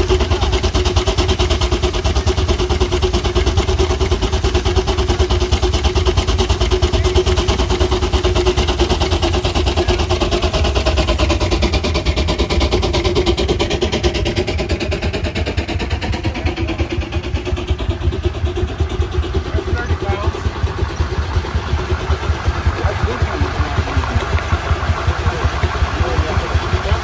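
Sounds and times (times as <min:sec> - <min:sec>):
traction engine running: 0:00.0 - 0:27.0.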